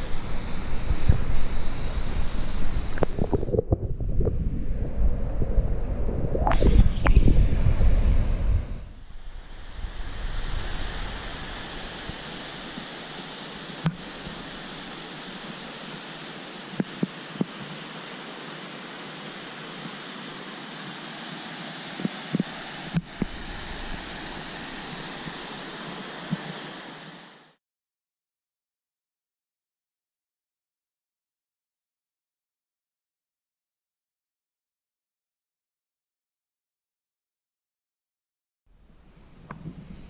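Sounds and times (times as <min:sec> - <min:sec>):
wind rumble on microphone: 0:00.0 - 0:12.3
water running over rocks: 0:00.1 - 0:03.9, 0:09.3 - 0:27.4
waterfall rushing: 0:09.1 - 0:27.6.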